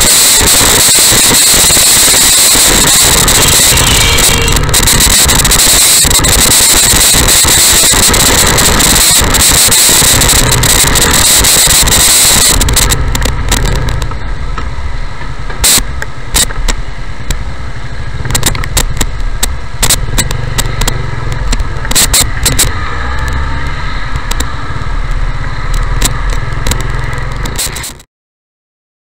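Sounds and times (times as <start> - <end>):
microphone crackles: 0.0 - 14.3, 18.2 - 24.6, 25.8 - 28.0
loud wind rush: 0.0 - 17.3
motorcycle engine running: 0.0 - 28.0.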